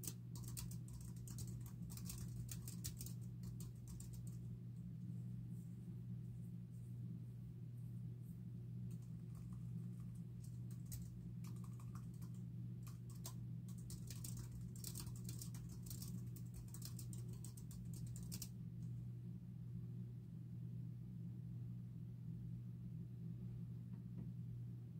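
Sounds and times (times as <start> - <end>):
typing on computer keyboard: 0.0 - 4.4, 8.9 - 18.5
steady low hum: 0.0 - 24.9.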